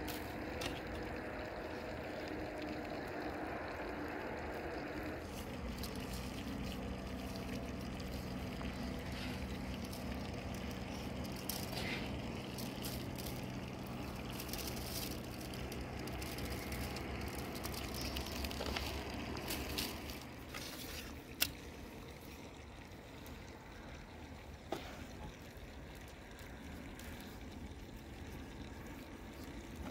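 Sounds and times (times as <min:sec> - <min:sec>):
steady low hum: 0:00.0 - 0:29.9.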